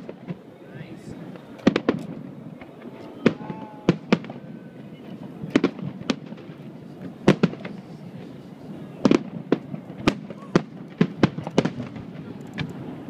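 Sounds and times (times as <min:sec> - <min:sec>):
murmur of voices: 0:00.0 - 0:13.0
firework shells bursting: 0:01.3 - 0:04.4, 0:09.0 - 0:12.9.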